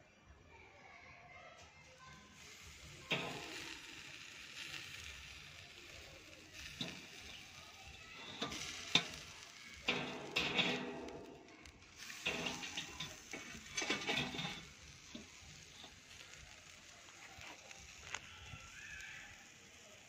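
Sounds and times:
fish sizzling on charcoal grill: 1.7s - 20.0s
metal basket clicking on grate: 3.1s - 4.0s, 8.2s - 15.9s.

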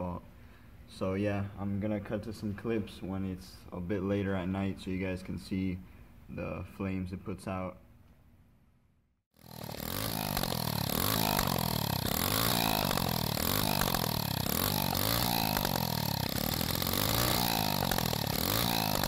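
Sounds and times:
pit bike engine revving: 9.4s - 19.0s.

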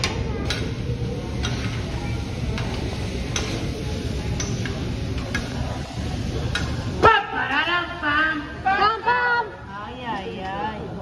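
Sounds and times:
meat sizzling on griddle: 1.2s - 6.9s
metal spatulas clicking and scraping: 1.3s - 1.8s, 2.6s - 5.6s.

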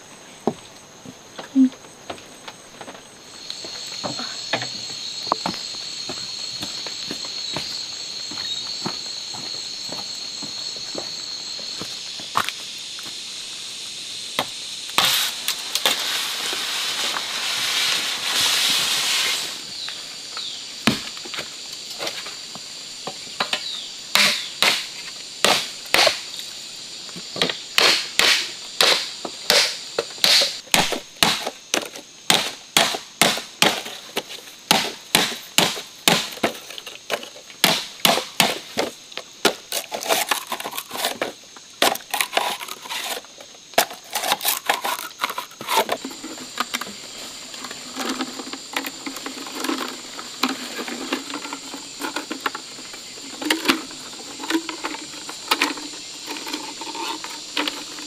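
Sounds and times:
machete striking bamboo on wood: 14.4s - 16.0s, 23.4s - 26.3s, 27.4s - 36.6s, 37.6s - 40.9s
dry bamboo leaves rustling: 15.0s - 20.4s, 39.5s - 58.0s.

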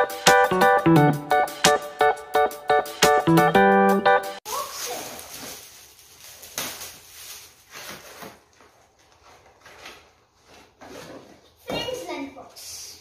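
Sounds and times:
foil gift wrap crinkling: 4.4s - 11.2s.

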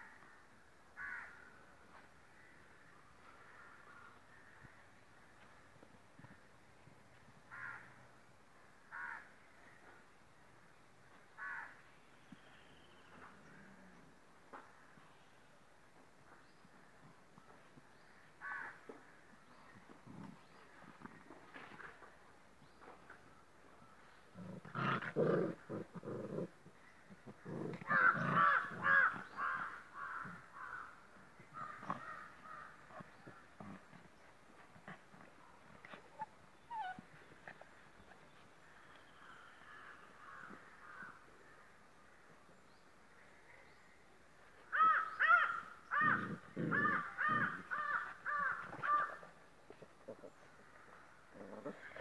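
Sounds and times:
puppies growling and yapping: 24.3s - 28.4s, 35.8s - 37.7s
harsh animal calls: 27.1s - 30.9s, 44.8s - 49.2s.

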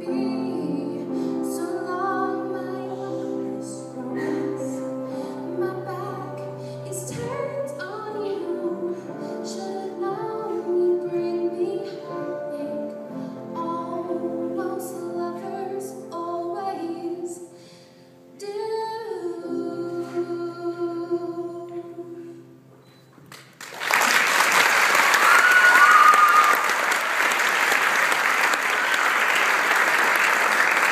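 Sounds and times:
woman singing: 0.0s - 17.6s, 18.3s - 22.6s
audience applause: 23.3s - 30.9s
high call from crowd: 24.9s - 29.6s.

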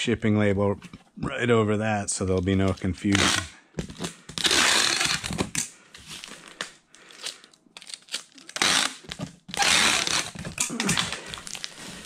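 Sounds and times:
packing tape tearing: 3.0s - 12.0s.

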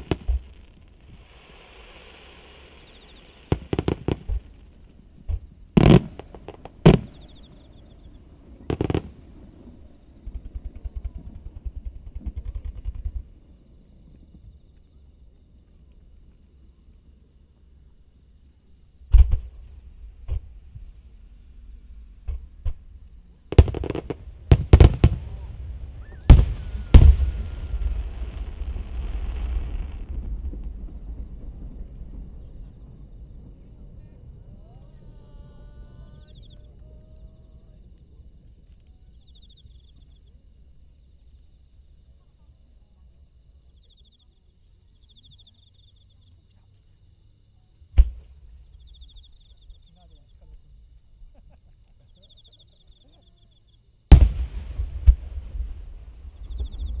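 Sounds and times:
distant firework bangs: 0.0s - 8.0s, 8.6s - 9.5s, 23.5s - 34.2s, 54.1s - 57.0s
insects chirping: 0.0s - 57.0s.

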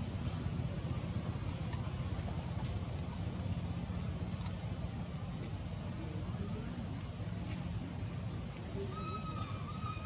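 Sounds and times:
steady low rumble: 0.0s - 9.7s
faint ticks: 3.8s - 4.6s.

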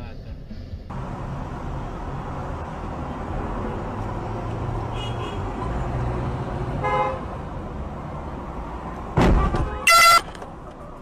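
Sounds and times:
road noise: 0.0s - 11.0s
car horn honking: 4.9s - 5.5s, 6.8s - 7.3s, 9.2s - 10.4s
loud thump: 9.1s - 9.8s.

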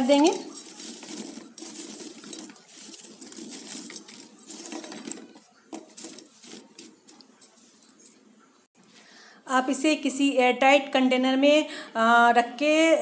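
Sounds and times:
fried snacks rustling on a plate: 0.0s - 8.2s.

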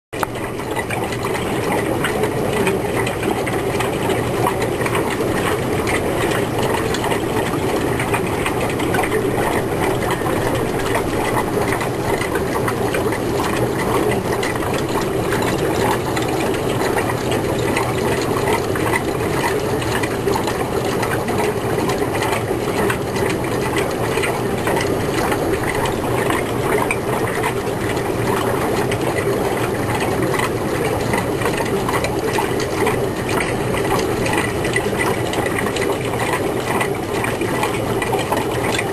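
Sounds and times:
fine fast rattle: 0.2s - 38.9s
small machine running: 0.2s - 38.9s.

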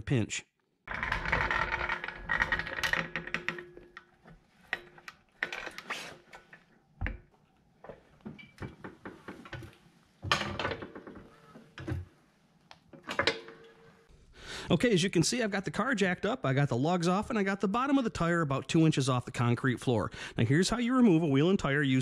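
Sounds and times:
floor jack clicking and clanking: 0.9s - 7.2s, 7.9s - 12.2s, 13.0s - 13.8s
faint squeak: 11.2s - 11.7s.

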